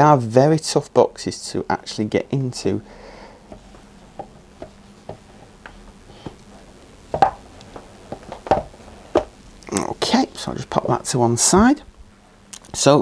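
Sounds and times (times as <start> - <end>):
hands tapping and scraping cardboard: 3.5 - 6.5, 7.1 - 9.3.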